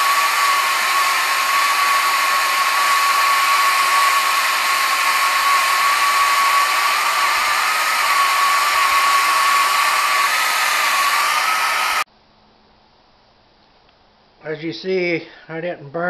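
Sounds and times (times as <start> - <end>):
blowtorch hissing: 0.0 - 12.1.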